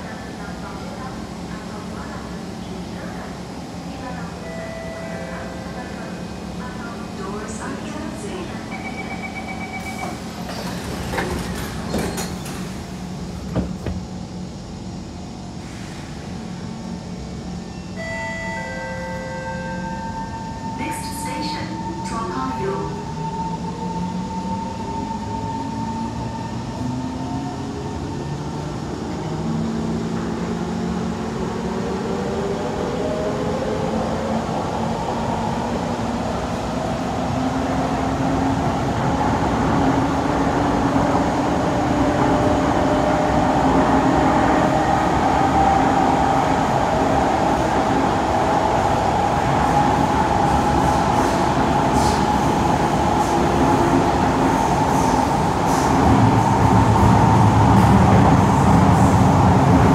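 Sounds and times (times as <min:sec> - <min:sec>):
train running rumble: 0:27.6 - 0:59.9.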